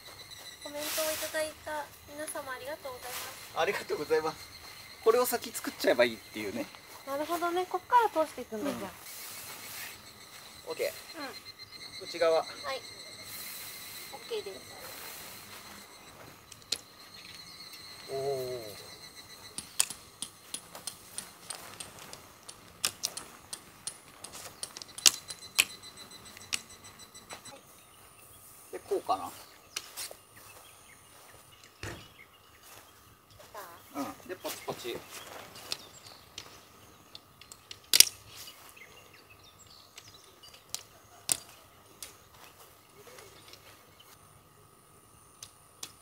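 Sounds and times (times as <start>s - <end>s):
tent poles and clips clicking: 19.5s - 26.8s, 35.5s - 38.6s.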